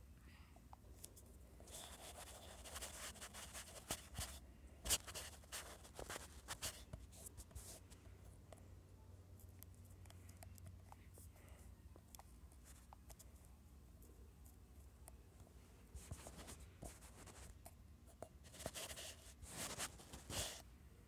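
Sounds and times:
faint low hum: 0.0 - 21.0
fingertip rubbing on touchscreen: 1.7 - 7.8.

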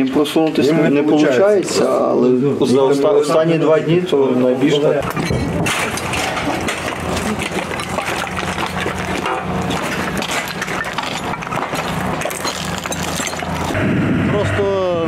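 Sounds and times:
footsteps crunching debris: 5.0 - 13.8
gear rattling: 5.0 - 13.8
steady low hum: 5.0 - 15.0.

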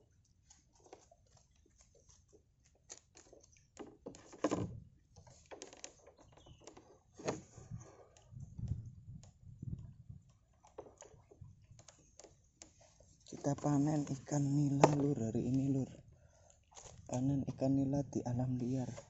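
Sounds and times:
small drips taps and knocks: 0.4 - 13.3.

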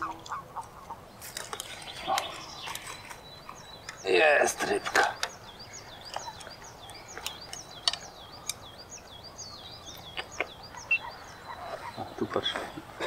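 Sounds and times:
songbird singing: 0.0 - 13.0
sharp clicks: 6.0 - 8.7, 9.9 - 11.0.

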